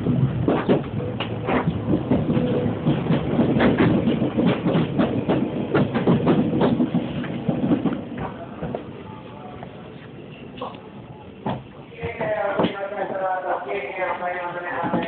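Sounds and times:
train wheels clacking over rails: 0.0s - 8.9s
train running rumble: 0.0s - 15.0s.

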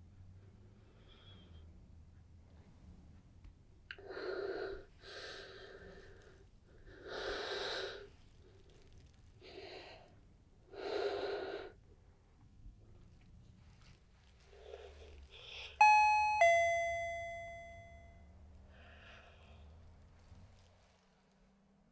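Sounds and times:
woman breathing heavily: 4.0s - 8.4s, 9.4s - 11.9s.

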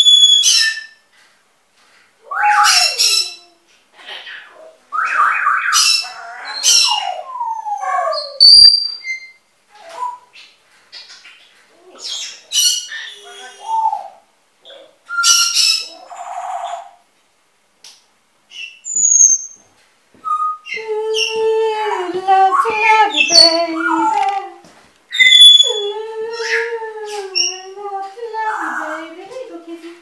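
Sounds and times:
parrots chattering: 2.2s - 17.0s, 22.4s - 24.5s, 25.1s - 27.7s
parrot squawk: 2.3s - 7.3s, 8.1s - 10.3s, 25.1s - 25.8s.

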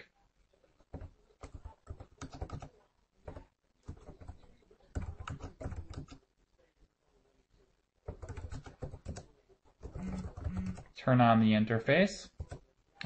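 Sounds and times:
computer keyboard typing: 0.8s - 6.2s, 8.1s - 10.9s, 12.3s - 12.6s.

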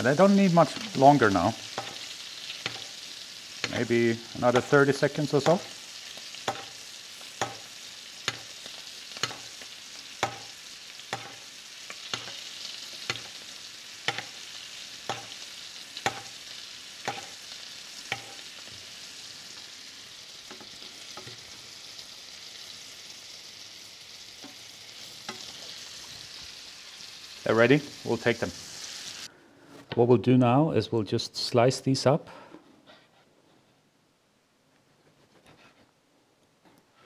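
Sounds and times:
scallops sizzling in a pan: 0.0s - 29.3s.

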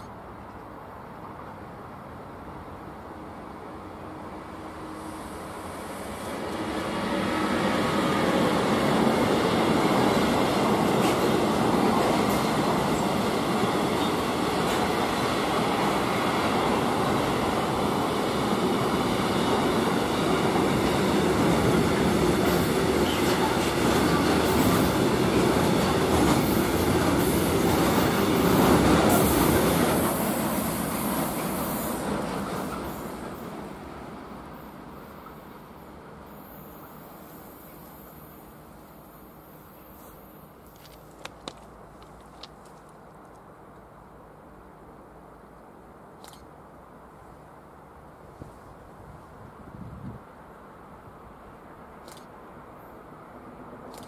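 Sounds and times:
freight train wheels rumbling: 0.0s - 43.1s.

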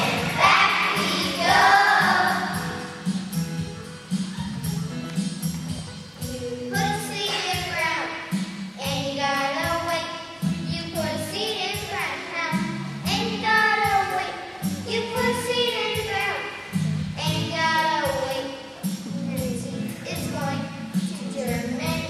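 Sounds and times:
children singing together: 0.0s - 3.1s
instrumental accompaniment: 0.0s - 22.0s.

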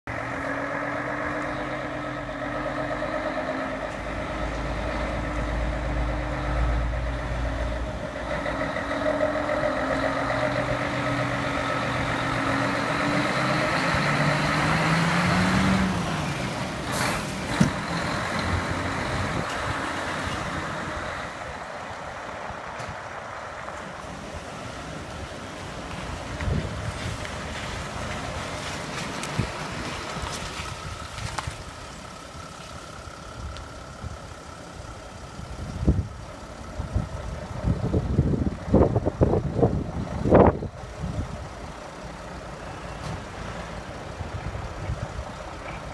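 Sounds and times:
diesel truck engine running: 0.1s - 45.9s
air brake hiss: 16.9s - 17.4s.

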